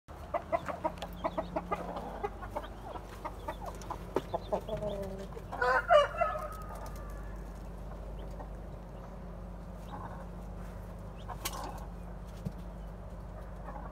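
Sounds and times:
chickens clucking: 0.1 - 13.9
loud drawn-out chicken call: 5.6 - 7.4.

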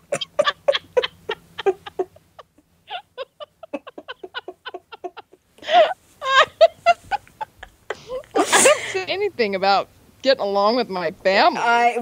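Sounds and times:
women laughing: 0.0 - 9.1.

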